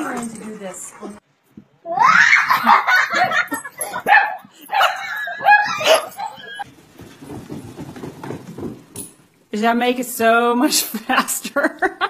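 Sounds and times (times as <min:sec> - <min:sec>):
dog yipping and whining: 0:03.9 - 0:06.6.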